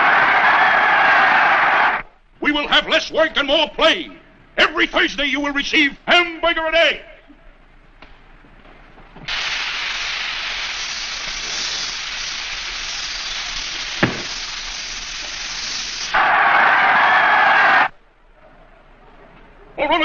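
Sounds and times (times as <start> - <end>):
crowd cheering: 0.0 - 2.2, 16.0 - 18.0
crowd hissing: 9.3 - 17.9
sharp knock: 14.0 - 14.4.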